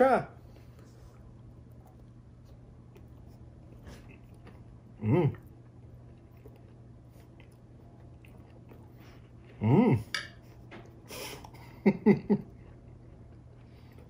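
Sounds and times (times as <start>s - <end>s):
man humming while chewing: 4.0s - 5.8s, 9.4s - 10.2s.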